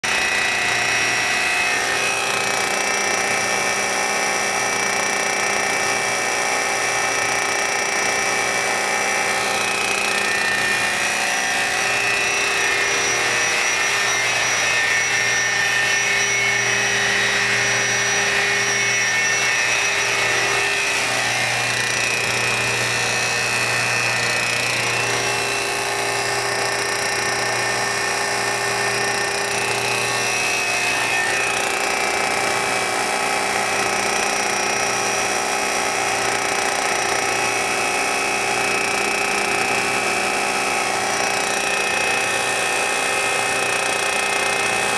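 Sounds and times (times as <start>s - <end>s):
high machine whine: 0.0s - 44.9s
industrial machinery humming: 8.8s - 28.9s.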